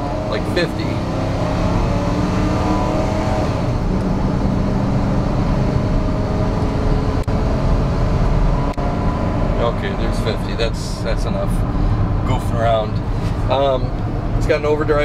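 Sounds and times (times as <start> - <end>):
truck engine at full throttle: 0.0 - 15.0.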